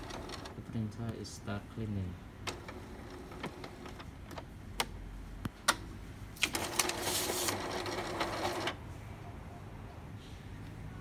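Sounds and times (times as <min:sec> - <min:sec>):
printer motor humming and rattling: 0:00.0 - 0:00.6, 0:02.5 - 0:04.2, 0:06.4 - 0:08.8.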